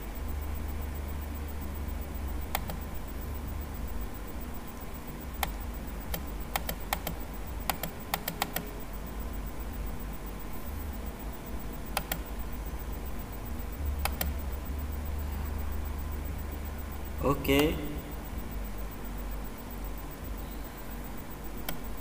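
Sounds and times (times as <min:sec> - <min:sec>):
low steady hum: 0:00.0 - 0:22.0
computer mouse clicking: 0:02.5 - 0:02.9, 0:05.4 - 0:08.7, 0:11.9 - 0:12.3, 0:14.0 - 0:14.4, 0:21.6 - 0:21.9.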